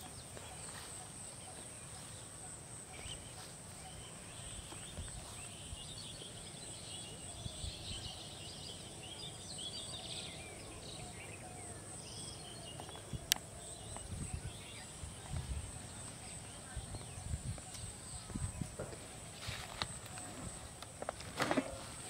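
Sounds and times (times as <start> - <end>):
birds chirping: 0.0 - 22.0
high insect drone: 0.0 - 22.0.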